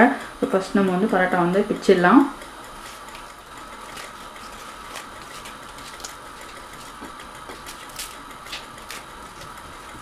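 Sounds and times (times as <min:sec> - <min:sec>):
background hum and hiss: 0:00.0 - 0:10.0
flatbread tearing crackles: 0:02.8 - 0:09.9.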